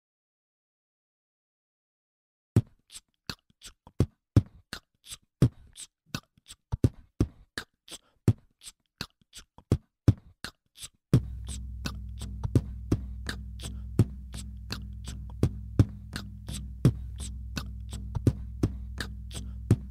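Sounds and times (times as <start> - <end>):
beatboxed kick and hi-hat loop: 2.6 - 19.9
low steady drone: 11.2 - 19.9.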